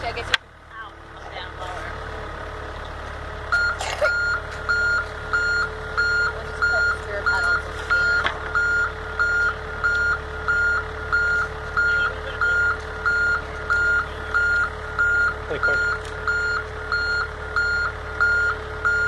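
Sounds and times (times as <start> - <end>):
diesel engine humming: 0.0 - 19.0
back-up alarm beeping: 3.5 - 19.0.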